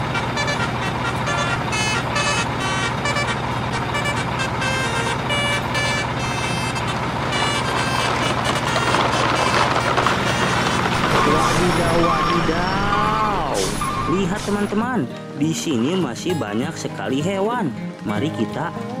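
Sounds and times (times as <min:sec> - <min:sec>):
low engine-like hum: 0:00.0 - 0:15.4
electronic beeping tune: 0:03.9 - 0:08.1, 0:11.0 - 0:14.9.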